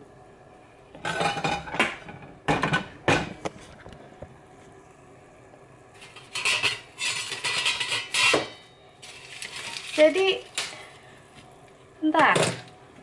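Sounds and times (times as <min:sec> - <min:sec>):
air fryer basket clunking: 0:01.0 - 0:03.5.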